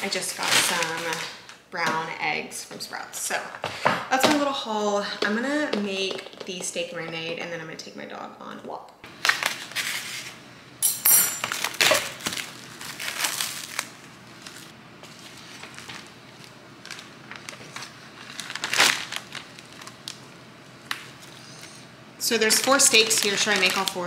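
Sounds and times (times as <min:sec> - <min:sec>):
plastic packaging crinkling: 0:00.0 - 0:01.6, 0:09.2 - 0:10.3, 0:11.4 - 0:24.0.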